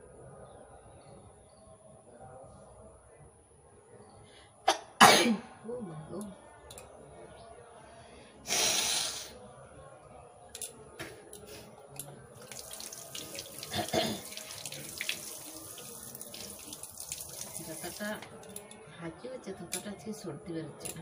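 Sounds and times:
water splashing onto hands: 12.4 - 18.2
water running from outdoor tap: 12.4 - 18.3.

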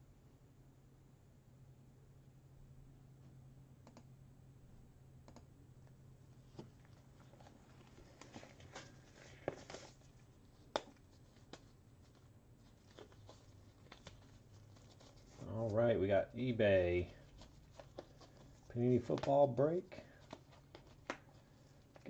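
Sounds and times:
low steady hum: 0.0 - 22.0
faint clicks and taps: 5.2 - 15.4, 17.2 - 22.0.

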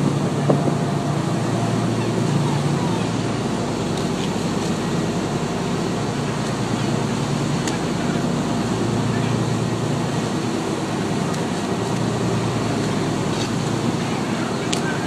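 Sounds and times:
wind on microphone: 0.0 - 6.0
boat engine droning: 0.0 - 15.0
water rushing along hull: 0.0 - 15.0.

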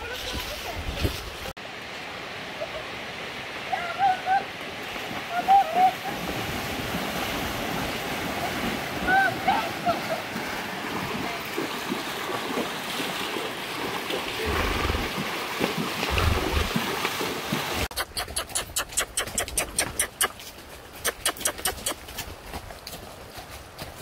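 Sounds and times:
horses splashing through water: 0.0 - 24.0
hooves clopping on dirt: 9.5 - 24.0.

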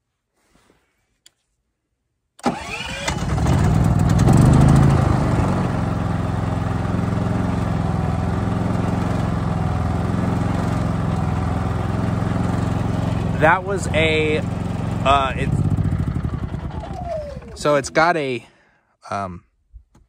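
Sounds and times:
generator engine starting and running: 2.4 - 18.4.

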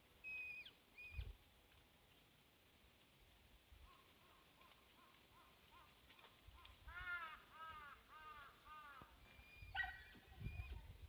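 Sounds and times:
crows cawing: 6.6 - 9.2.

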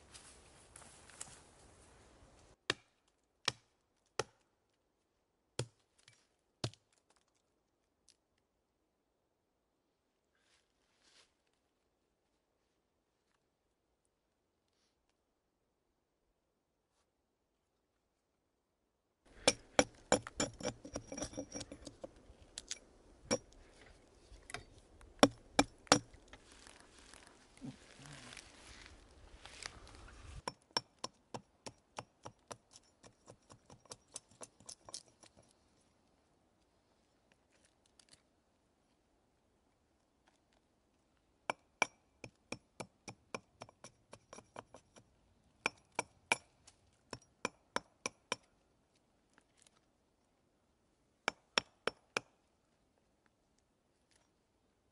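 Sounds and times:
hatchet chopping log: 2.7 - 4.4, 19.4 - 21.1, 25.2 - 26.1.

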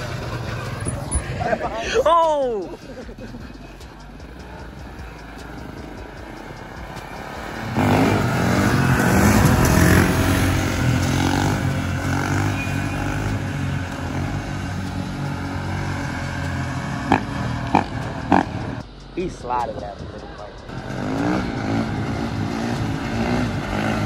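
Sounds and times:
dirt bike engine revving: 4.2 - 18.8, 20.7 - 24.0.

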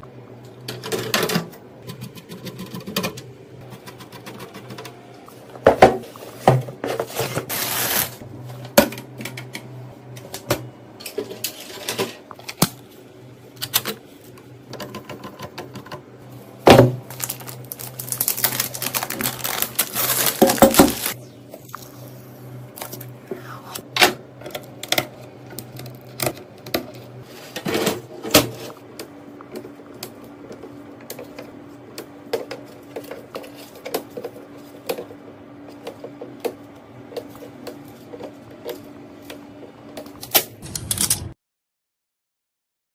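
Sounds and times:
faint steady hum: 0.0 - 40.3.

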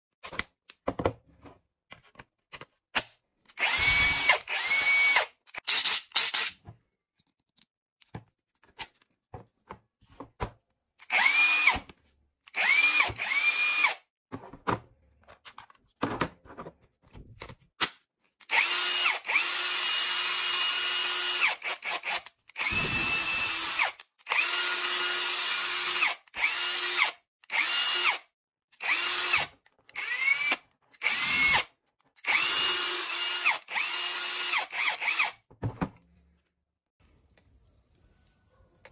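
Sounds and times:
impact wrench whining: 3.6 - 6.6, 18.5 - 28.2.

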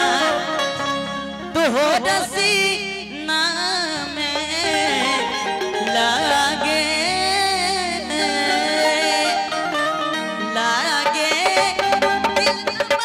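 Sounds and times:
man singing into a microphone: 0.0 - 0.7, 1.5 - 9.6
instrumental backing: 0.0 - 13.0.

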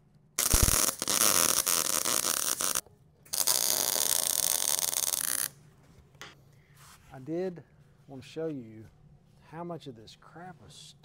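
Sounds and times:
welder crackling buzz: 0.4 - 5.5.

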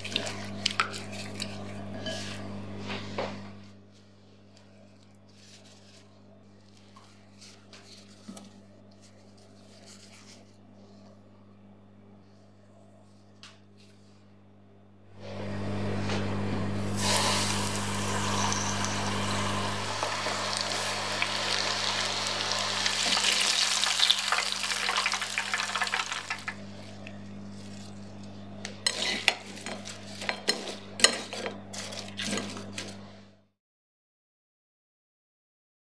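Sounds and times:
chicken deep-frying in oil: 16.8 - 27.3.

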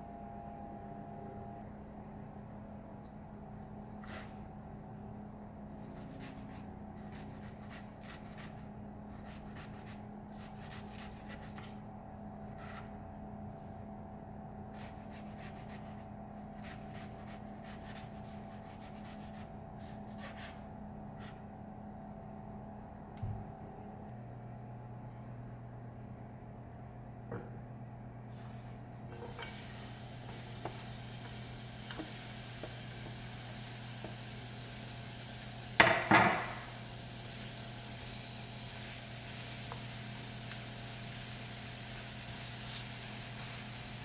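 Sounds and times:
steady low hum: 0.0 - 44.0
knock on cutting board: 35.8 - 36.6.

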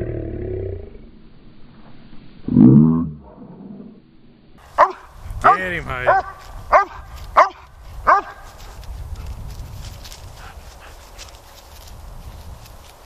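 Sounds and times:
dog barking: 4.8 - 8.5.

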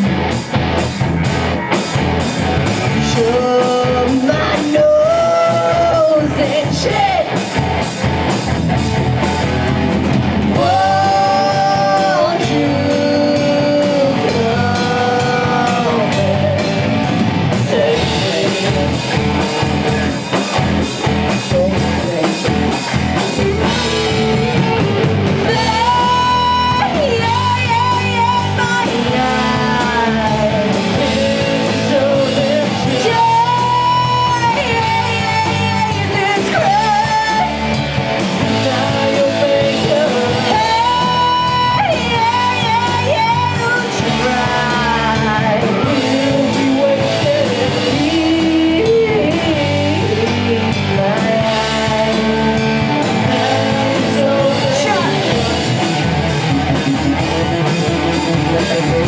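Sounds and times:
distorted electric guitars: 0.0 - 59.0
drum kit: 0.0 - 59.0
woman singing: 3.0 - 7.4, 10.5 - 16.8, 25.4 - 37.7, 38.4 - 55.7.

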